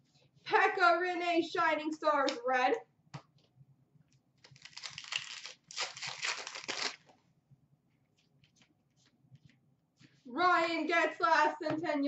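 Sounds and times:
wrapper tearing and crinkling: 4.4s - 7.1s.

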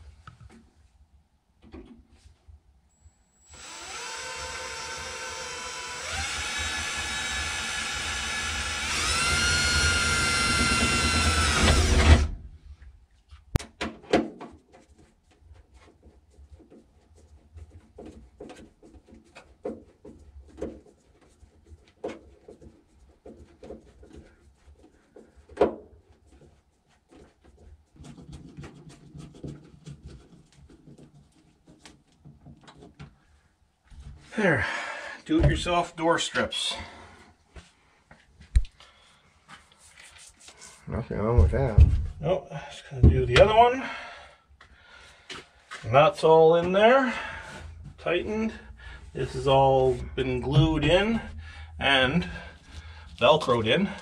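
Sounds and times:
cordless drill motor whining: 3.4s - 12.3s.

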